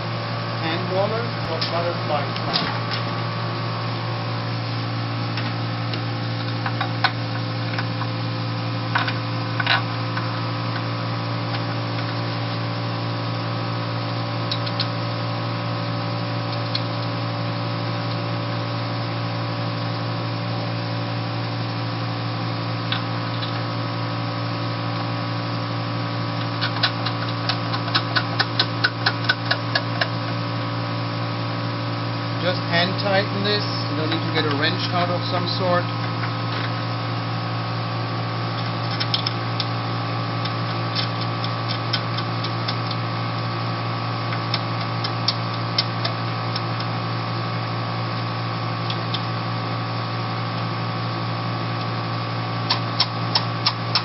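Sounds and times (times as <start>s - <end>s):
steady mechanical hum: 0.0s - 54.0s.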